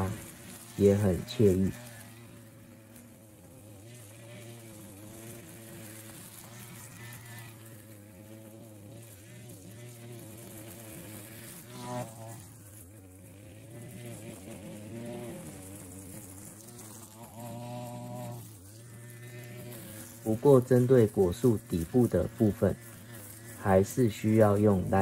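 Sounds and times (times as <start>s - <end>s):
distant string trimmer engine buzzing: 0.0s - 25.0s.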